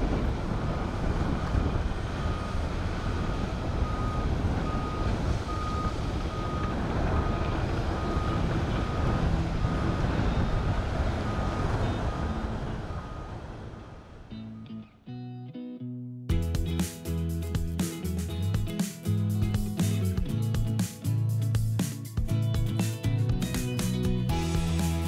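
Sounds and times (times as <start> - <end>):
backup alarm beeping: 3.8 - 7.4.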